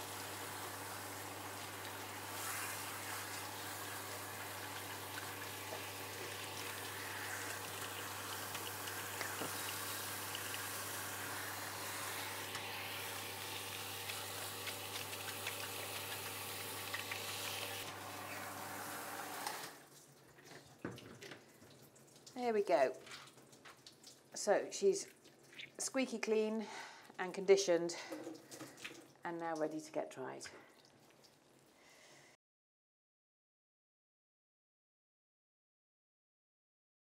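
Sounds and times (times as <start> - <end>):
shower head spraying water: 0.0 - 19.8.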